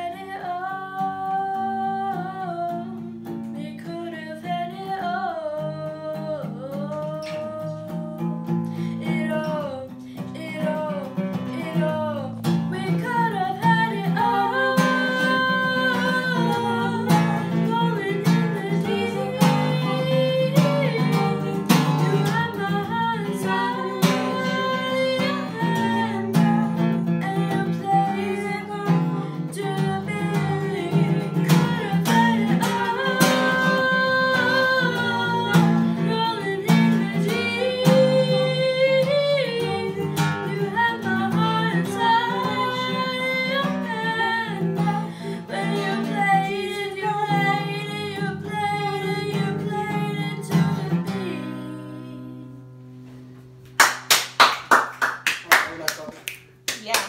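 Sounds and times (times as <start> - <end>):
girl singing: 0.0 - 52.7
acoustic guitar strumming: 0.0 - 53.8
sharp claps: 53.7 - 57.0.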